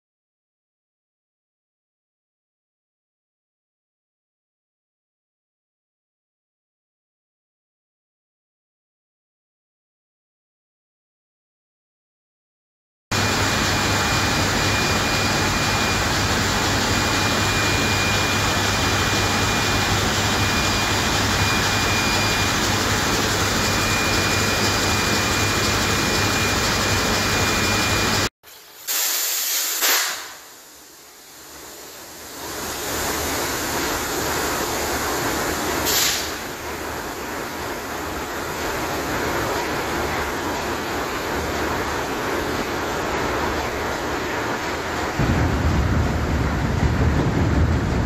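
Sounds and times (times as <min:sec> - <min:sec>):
constant high whine: 0:13.1 - 0:28.3, 0:30.4 - 0:48.0
diesel engine machinery din: 0:13.1 - 0:28.3, 0:45.0 - 0:48.0
short loud hiss: 0:28.7 - 0:30.6, 0:35.8 - 0:36.4.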